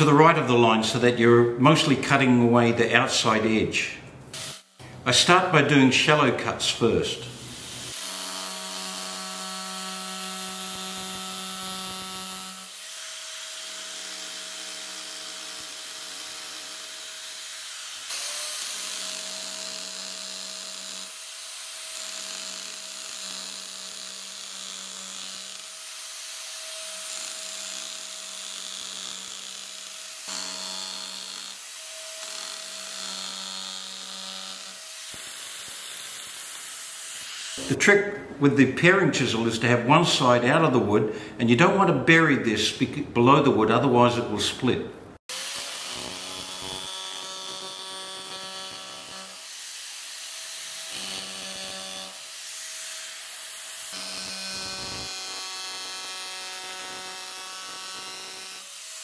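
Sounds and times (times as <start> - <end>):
power chisel cutting wood: 7.3 - 37.8, 45.2 - 59.0.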